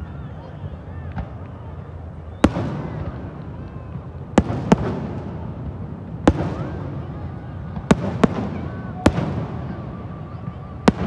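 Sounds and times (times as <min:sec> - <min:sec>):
fireworks bangs with rolling echo: 0:02.4 - 0:11.0.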